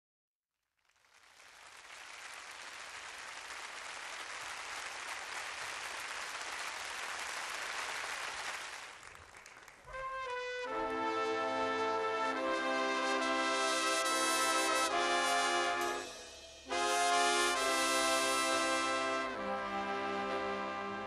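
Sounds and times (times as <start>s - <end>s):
audience applause: 0.8s - 9.9s.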